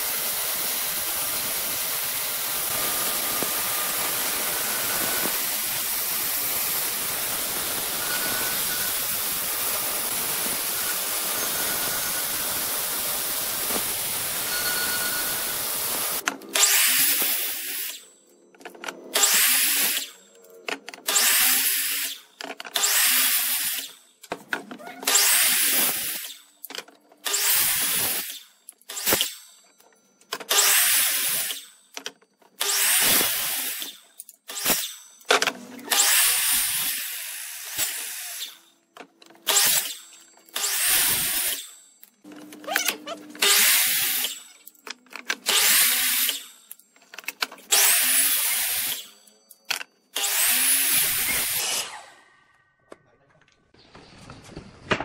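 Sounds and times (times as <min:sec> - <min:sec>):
power tool cutting wood: 0:00.0 - 0:18.1, 0:19.1 - 0:20.2, 0:21.0 - 0:24.0, 0:25.0 - 0:26.5, 0:27.2 - 0:29.5, 0:30.4 - 0:31.7, 0:32.6 - 0:35.0, 0:35.6 - 0:38.7, 0:39.4 - 0:46.8, 0:47.7 - 0:49.2, 0:50.2 - 0:52.3.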